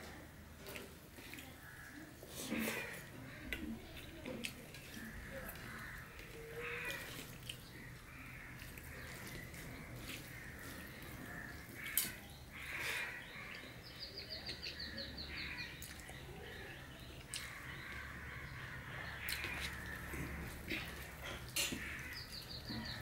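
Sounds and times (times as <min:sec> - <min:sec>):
chewing: 0:02.2 - 0:13.8, 0:15.6 - 0:23.0
fingers mixing rice on plate: 0:02.4 - 0:12.7, 0:17.2 - 0:23.0
crows cawing: 0:02.6 - 0:03.8, 0:04.8 - 0:14.0, 0:14.6 - 0:23.0.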